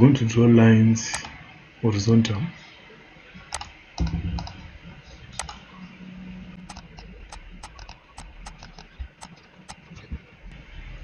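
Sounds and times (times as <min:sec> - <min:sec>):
mouse and keyboard clicking: 0:03.5 - 0:03.7, 0:05.4 - 0:05.6, 0:06.7 - 0:10.0.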